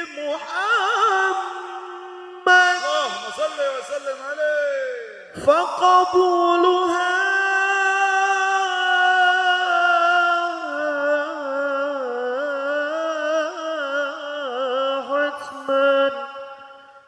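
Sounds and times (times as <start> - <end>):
person singing long held note: 0.0 - 4.5.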